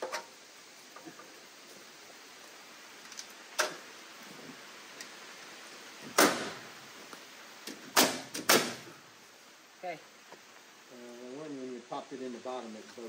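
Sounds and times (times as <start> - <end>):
nails hammered into wood: 6.1 - 6.6, 7.7 - 8.9.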